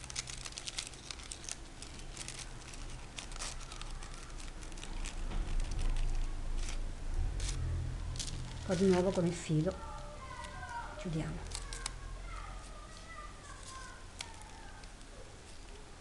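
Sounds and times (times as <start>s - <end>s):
crepe paper crinkling: 0.0s - 16.0s
low rumble: 5.0s - 10.1s.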